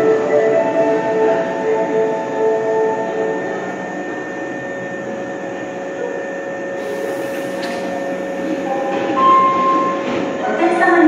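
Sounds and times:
subway train rushing with whine: 0:00.0 - 0:11.0
high hiss: 0:06.8 - 0:09.0.

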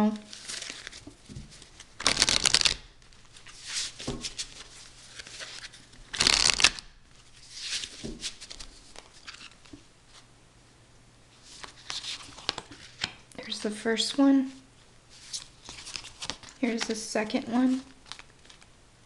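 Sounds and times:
cards being shuffled: 0:00.3 - 0:10.2, 0:11.5 - 0:13.2, 0:15.2 - 0:17.0, 0:17.6 - 0:18.7.

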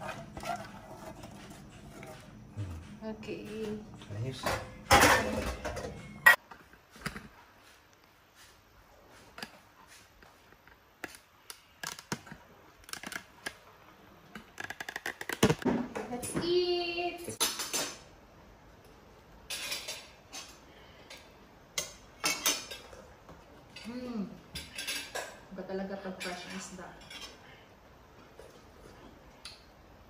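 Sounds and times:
ceramic plates clinking: 0:04.4 - 0:06.4.

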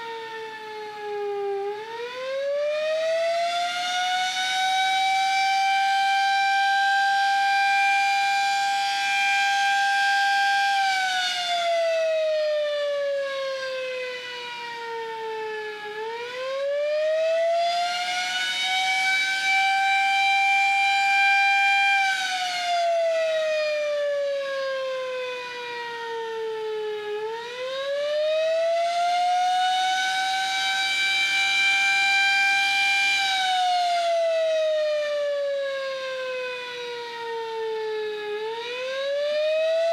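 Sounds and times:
siren wailing: 0:00.0 - 0:39.9.

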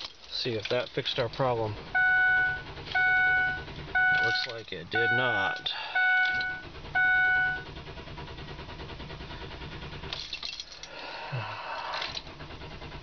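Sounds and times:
starter cranking engine: 0:00.0 - 0:13.0
dashboard warning chime: 0:01.8 - 0:07.8.

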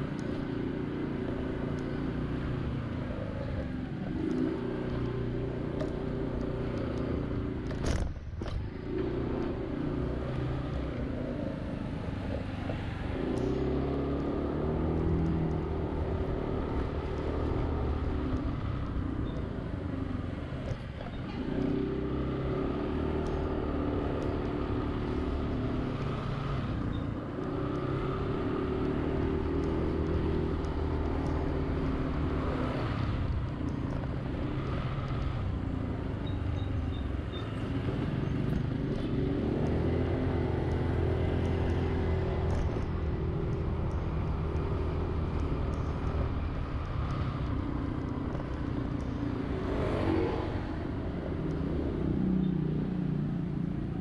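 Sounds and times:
traffic noise: 0:00.0 - 0:54.0
vehicle engine speeding up: 0:37.7 - 0:52.3.

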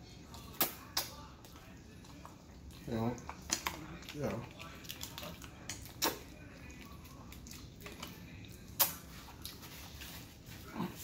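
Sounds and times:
mouth smacks and clicks: 0:05.0 - 0:06.4, 0:08.7 - 0:09.6.

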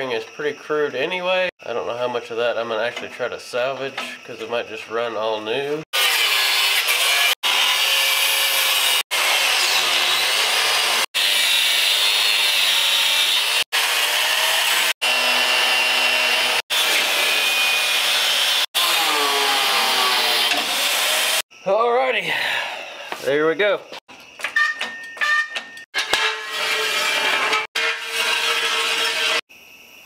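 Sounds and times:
angle grinder cutting steel: 0:06.0 - 0:21.4, 0:24.6 - 0:29.5.

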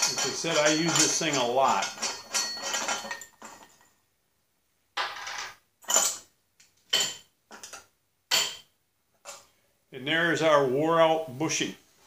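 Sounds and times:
steel washers sliding off: 0:00.0 - 0:03.8
metal scraping and clinking: 0:00.0 - 0:04.0, 0:05.0 - 0:06.3.

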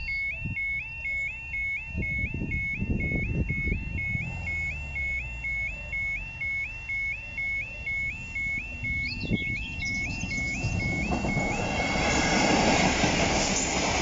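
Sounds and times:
two-tone level crossing alarm: 0:00.0 - 0:14.0
low rumbling: 0:02.0 - 0:11.6.

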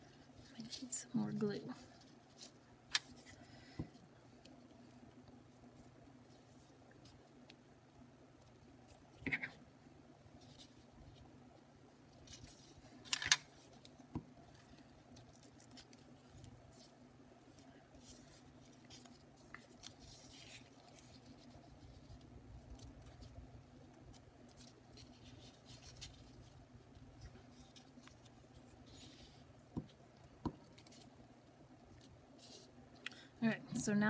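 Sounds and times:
paper rustling and scratching: 0:12.1 - 0:32.7.

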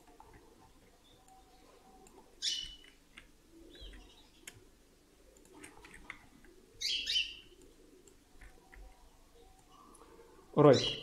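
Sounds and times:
low room noise: 0:00.0 - 0:11.0
faint clicks: 0:05.3 - 0:06.6, 0:07.5 - 0:09.0.

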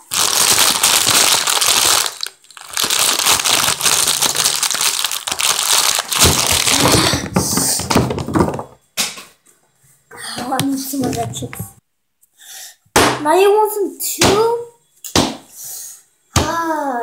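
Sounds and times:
plastic chip bag crinkling: 0:00.0 - 0:07.2.

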